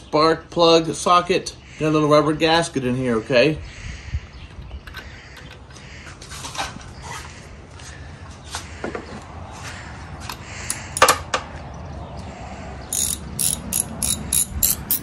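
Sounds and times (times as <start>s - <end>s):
socket ratchet clicking: 10.7s - 11.1s, 12.9s - 15.0s.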